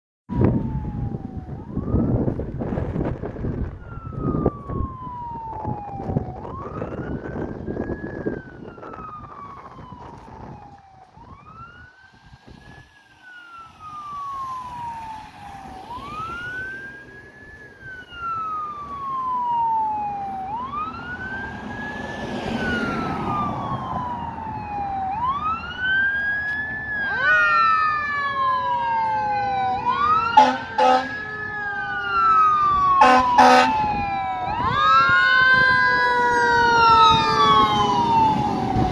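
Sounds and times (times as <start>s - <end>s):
second siren with faster sweeps: 0.3s - 38.9s
siren wailing: 0.3s - 38.9s
loud horn blasts: 30.4s - 31.2s, 33.0s - 33.8s.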